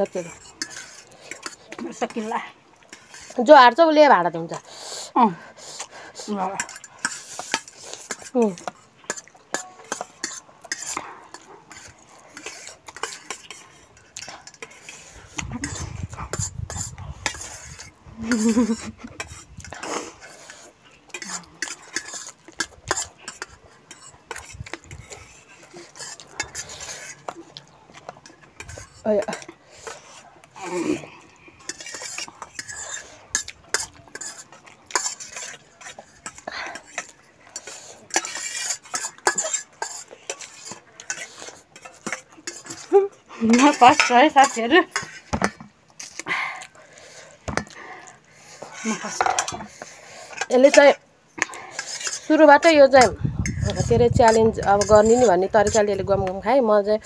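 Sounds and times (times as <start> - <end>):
cutlery scraping metal plates: 0.0 - 2.3, 6.3 - 27.4, 31.0 - 46.2, 48.8 - 56.0.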